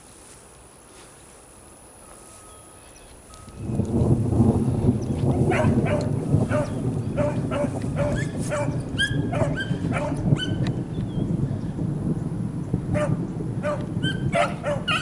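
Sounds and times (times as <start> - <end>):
low rushing noise: 1.2 - 14.7
dogs baying: 5.5 - 10.6, 13.0 - 15.0.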